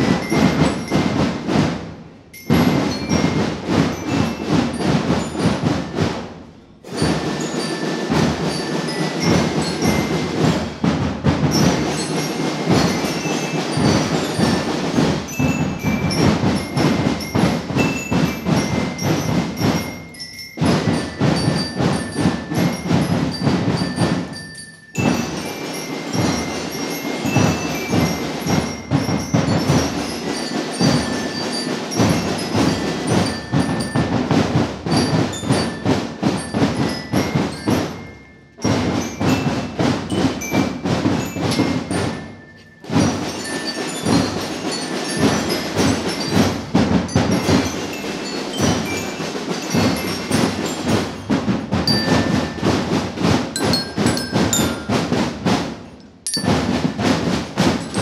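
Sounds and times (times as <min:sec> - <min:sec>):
drums and cymbals beat: 0:00.0 - 0:58.0
marching band playing: 0:00.0 - 0:58.0
high bell-like notes: 0:47.4 - 0:57.0.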